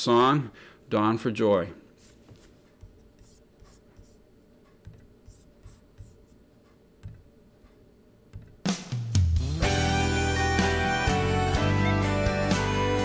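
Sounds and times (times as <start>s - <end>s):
soft rustles and scratches: 1.9s - 6.4s.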